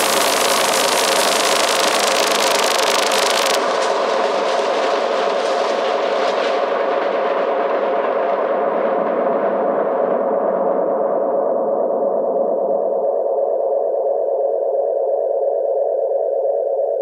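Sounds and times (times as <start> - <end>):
synthesizer noise drone: 0.0 - 4.8.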